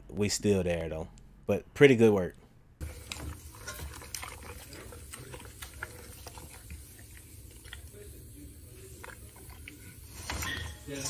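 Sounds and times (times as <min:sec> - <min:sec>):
dog chewing: 0:02.8 - 0:10.8.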